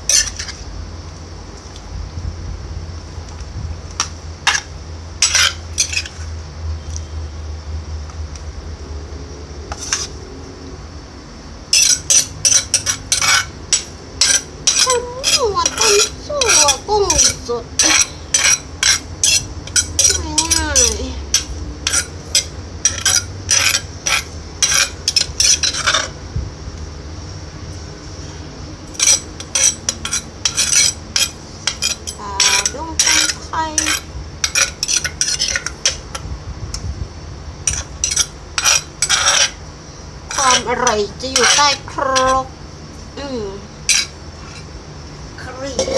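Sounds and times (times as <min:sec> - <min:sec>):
pestle clattering in mortar: 0:11.8 - 0:26.1, 0:28.9 - 0:36.2.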